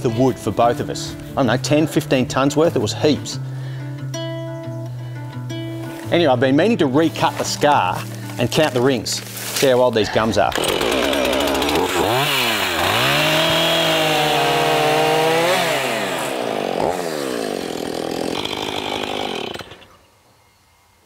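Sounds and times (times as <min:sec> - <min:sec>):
chainsaw cutting wood: 0:10.2 - 0:20.0.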